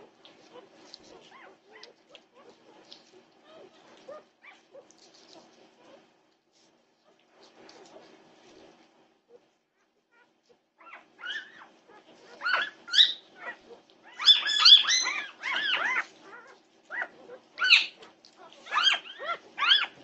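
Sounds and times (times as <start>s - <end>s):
faint steady hum: 0.0s - 20.0s
puppies squealing and crying: 10.8s - 20.0s.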